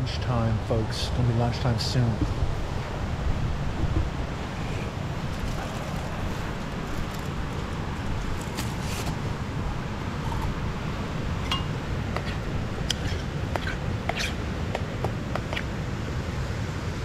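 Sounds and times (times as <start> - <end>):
steady low rumble: 0.0 - 17.0
metal spoon clinking in pot: 11.4 - 11.8.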